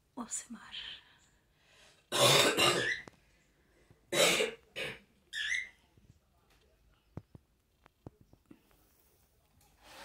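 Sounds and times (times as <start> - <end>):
person coughing: 2.1 - 3.0, 4.1 - 5.0.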